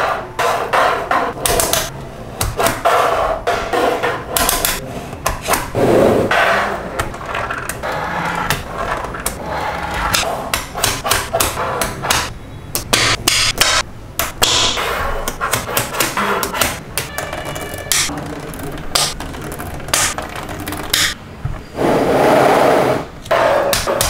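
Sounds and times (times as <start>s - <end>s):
magnetic balls clicking together: 4.3s - 5.8s, 7.0s - 21.2s.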